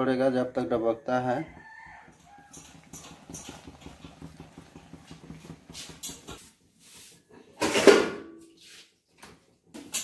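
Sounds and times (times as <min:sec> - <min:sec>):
steel pot clanking: 0:00.5 - 0:06.4.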